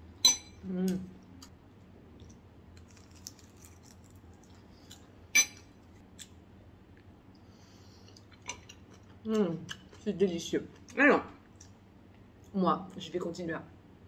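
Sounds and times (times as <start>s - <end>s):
utensils clinking on ceramic bowl: 5.4s - 5.7s.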